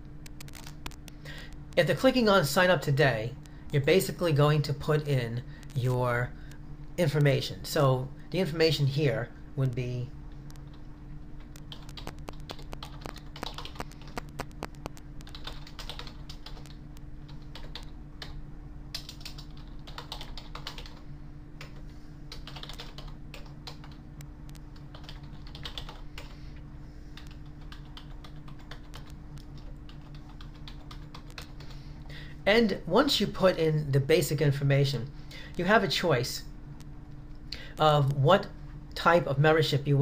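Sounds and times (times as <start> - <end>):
steady low hum: 0.0 - 40.0
typing on computer keyboard: 11.4 - 21.0, 21.6 - 24.0, 24.8 - 26.3, 27.2 - 31.7.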